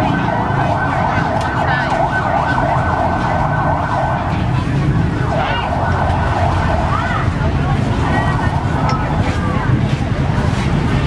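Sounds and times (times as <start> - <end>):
electronic synth music: 8.1 - 9.8.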